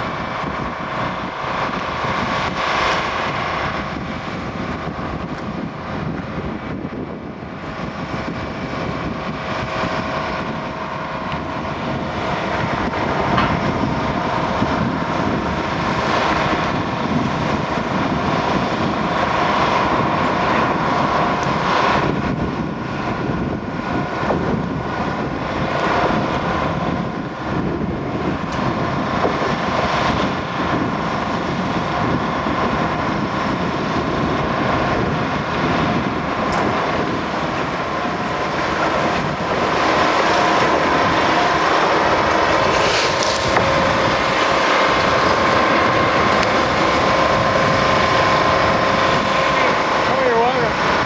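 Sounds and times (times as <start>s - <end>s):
sustained mechanical whine: 0.0s - 51.0s
work train mechanical drone: 0.0s - 51.0s.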